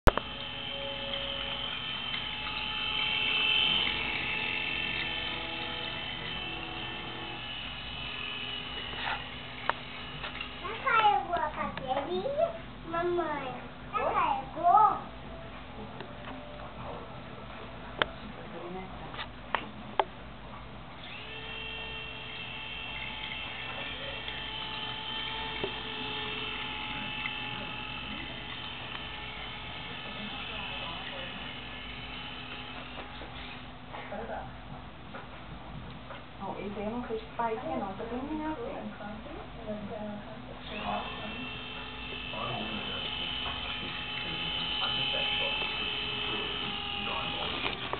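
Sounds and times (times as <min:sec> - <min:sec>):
whining tones: 0:00.0 - 0:47.9
toy train motor whirring: 0:00.1 - 0:13.2, 0:21.0 - 0:33.7, 0:40.6 - 0:47.9.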